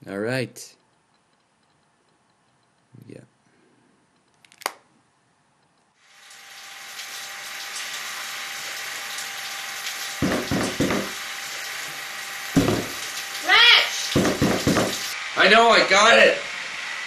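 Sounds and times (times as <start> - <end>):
tap water running: 6.0 - 15.2.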